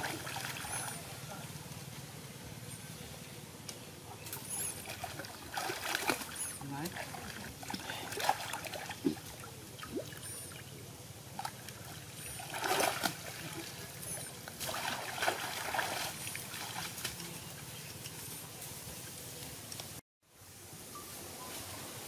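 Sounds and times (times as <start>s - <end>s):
water splashing and sloshing: 0.0s - 1.4s, 4.1s - 18.2s.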